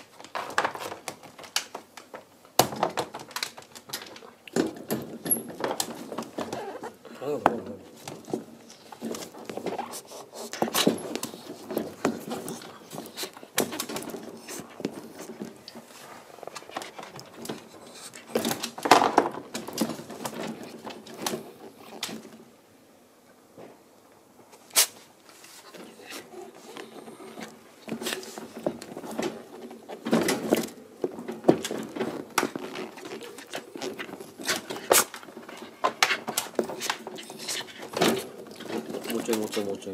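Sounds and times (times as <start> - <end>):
puppy gnawing a toy: 8.1 - 22.3, 25.7 - 39.6
teeth and paws on crate bars: 25.8 - 39.7.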